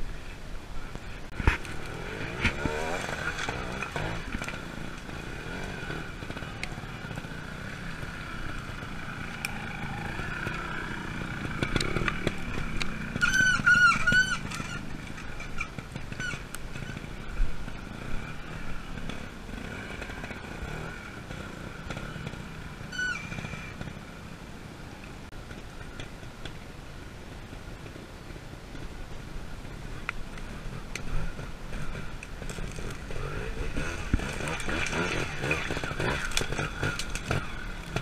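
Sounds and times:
motorcycle engine revving: 0:00.9 - 0:25.0, 0:29.6 - 0:38.0
loud warbling squeal: 0:13.2 - 0:14.8.

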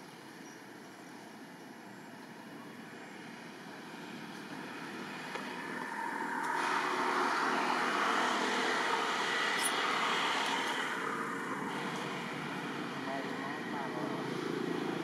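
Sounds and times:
vehicle passing by: 0:03.2 - 0:15.0.

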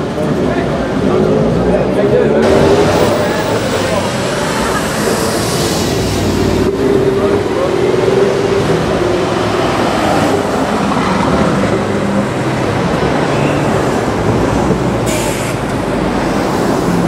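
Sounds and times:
car exhaust accelerating loudly: 0:02.4 - 0:13.3.

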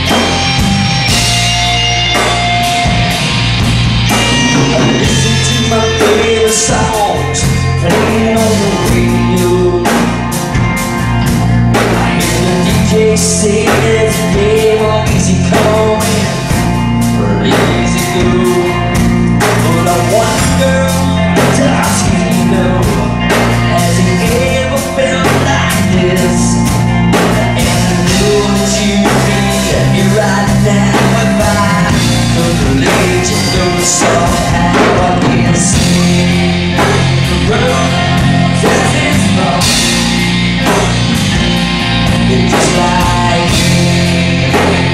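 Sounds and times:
drum beat: 0:00.0 - 0:08.5, 0:31.0 - 0:44.9
bass: 0:00.0 - 0:44.9
person singing: 0:04.1 - 0:10.6, 0:11.3 - 0:40.9, 0:42.0 - 0:44.9.

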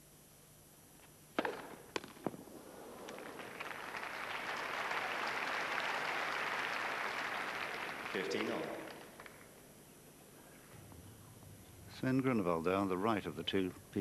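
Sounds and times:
tennis racket hitting ball: 0:01.4 - 0:02.4
crowd applause: 0:02.9 - 0:09.1.

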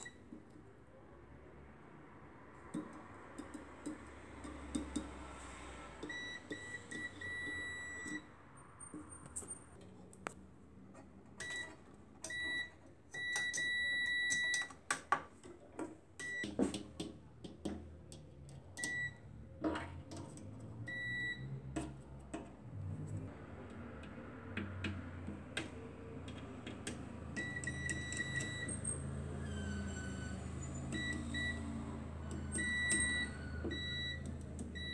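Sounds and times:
multimeter beeping: 0:06.0 - 0:08.3, 0:11.4 - 0:14.7, 0:27.4 - 0:28.8, 0:32.5 - 0:34.9.

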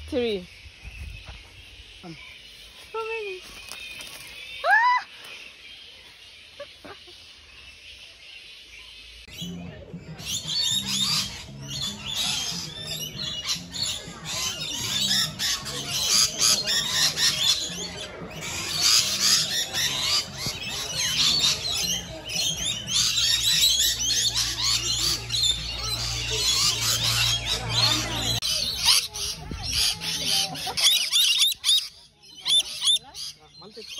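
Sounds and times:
parrots screeching and chattering: 0:10.2 - 0:33.9.

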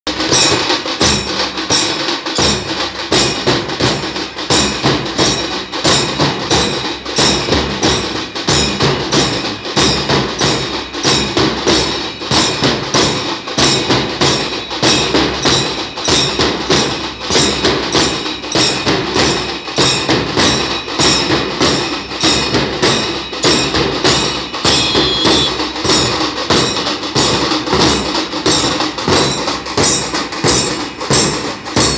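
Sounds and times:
drums beaten in fast rhythm: 0:00.1 - 0:31.9.

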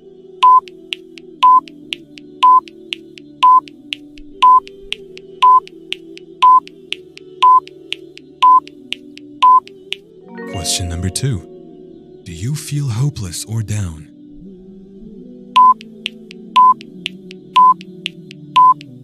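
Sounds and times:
soft background music: 0:00.0 - 0:19.0
short high beeps: 0:07.4 - 0:07.6.

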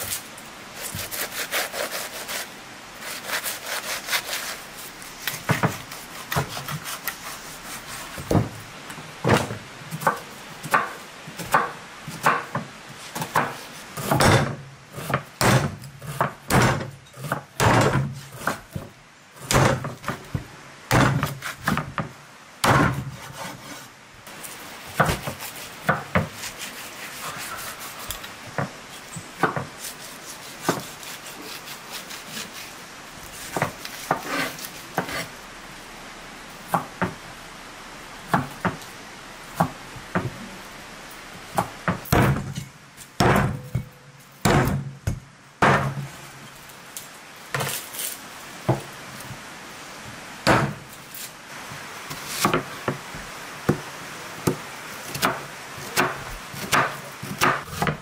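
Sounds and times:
knife sawing through meat: 0:00.8 - 0:05.0, 0:05.8 - 0:08.2, 0:26.3 - 0:28.3, 0:29.8 - 0:32.8
cleaver chopping on wooden board: 0:09.3 - 0:18.9, 0:19.5 - 0:20.2, 0:24.9 - 0:26.5, 0:29.4 - 0:31.0, 0:44.4 - 0:46.0, 0:50.4 - 0:50.8, 0:55.2 - 0:58.0.

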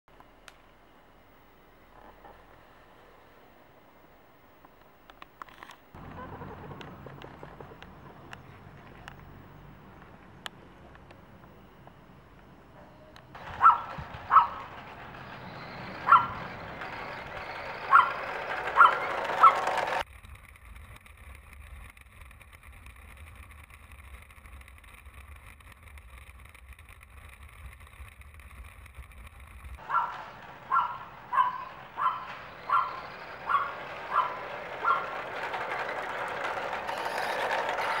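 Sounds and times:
toy truck running on asphalt: 0:05.1 - 0:12.5, 0:13.2 - 0:38.0
dog barking: 0:13.5 - 0:14.7, 0:16.1 - 0:16.4, 0:17.9 - 0:18.2, 0:18.8 - 0:19.6, 0:29.8 - 0:35.1.

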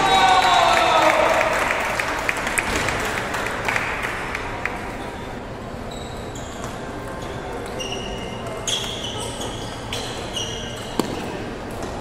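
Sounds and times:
background chatter: 0:02.6 - 0:12.0.

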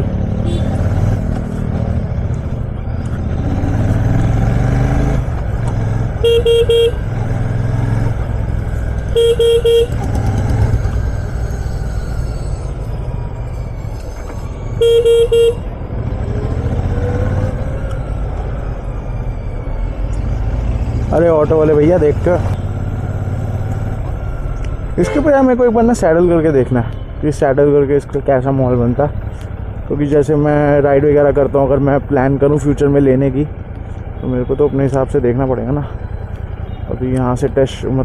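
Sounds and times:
traffic rumble: 0:00.0 - 0:38.0
motorcycle engine crawling: 0:00.1 - 0:14.8
vehicle horn tooting: 0:00.4 - 0:00.8, 0:06.2 - 0:07.1, 0:09.1 - 0:10.2, 0:14.8 - 0:15.7, 0:25.0 - 0:25.5.

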